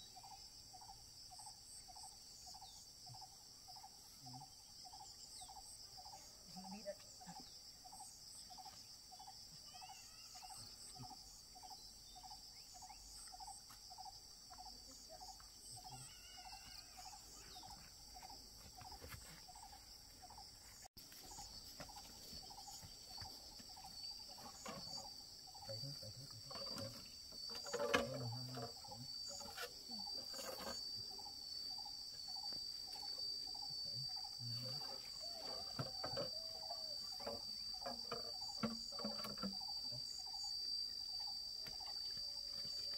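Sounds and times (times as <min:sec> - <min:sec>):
high insect whine: 0:00.0 - 0:42.9
insects trilling: 0:00.0 - 0:42.9
low insect chirp: 0:00.0 - 0:42.9
knocks and rustles: 0:20.8 - 0:25.1, 0:25.9 - 0:31.0.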